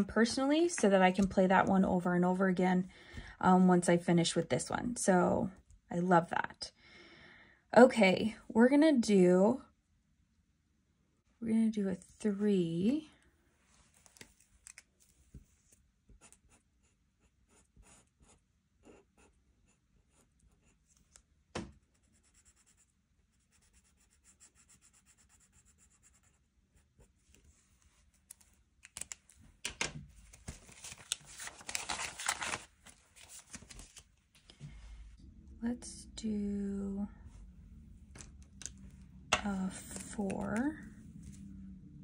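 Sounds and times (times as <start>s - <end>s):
marker scratching on paper: 21.9s - 27.2s
paper rustling: 30.1s - 34.5s.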